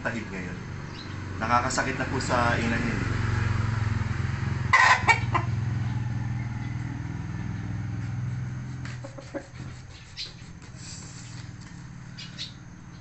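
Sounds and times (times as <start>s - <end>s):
rooster squawking: 4.7s - 5.5s, 8.9s - 10.5s.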